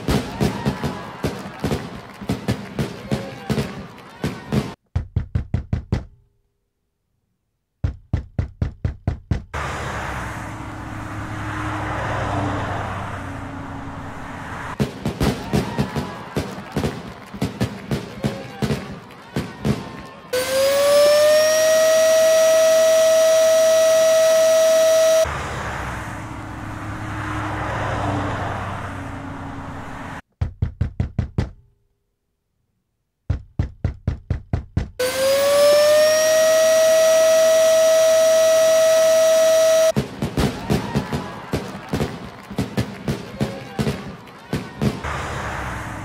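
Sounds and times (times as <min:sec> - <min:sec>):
fast door knocking: 0:05.0 - 0:06.2, 0:07.8 - 0:09.5, 0:30.4 - 0:31.6, 0:33.3 - 0:35.0
vehicle passing: 0:09.6 - 0:14.8, 0:24.3 - 0:30.2, 0:45.0 - 0:46.0.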